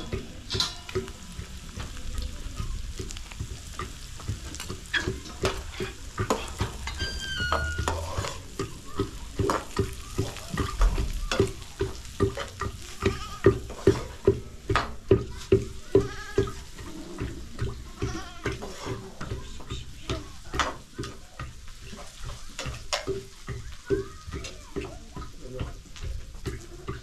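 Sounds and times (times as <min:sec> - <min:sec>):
food sizzling in a frying pan: 0:00.0 - 0:27.0
metal spoon scraping a pan: 0:00.4 - 0:01.2, 0:03.2 - 0:19.6.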